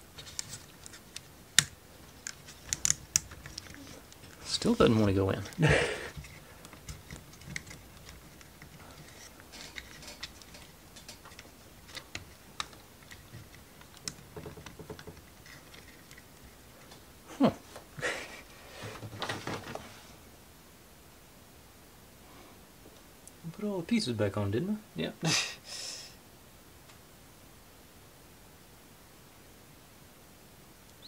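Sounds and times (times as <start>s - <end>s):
scraping and rubbing: 0.1s - 16.8s
wooden parts clicking and tapping: 0.2s - 17.0s.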